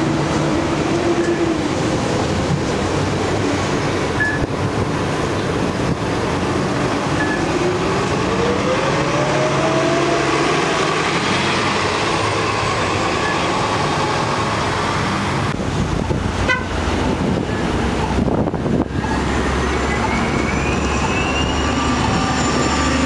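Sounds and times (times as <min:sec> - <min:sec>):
bus accelerating whine: 0:00.0 - 0:23.0
traffic noise: 0:00.0 - 0:23.0
short beeps: 0:04.2 - 0:04.5, 0:07.2 - 0:07.4.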